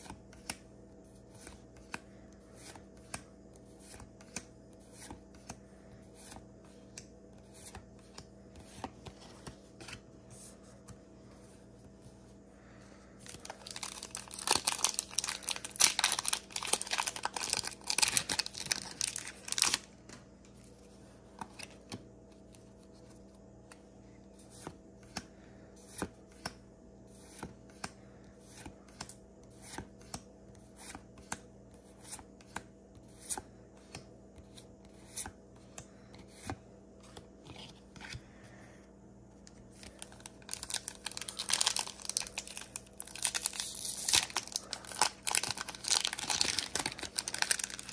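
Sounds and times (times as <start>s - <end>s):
foil wrapper crinkling: 13.2s - 19.9s, 39.8s - 47.9s.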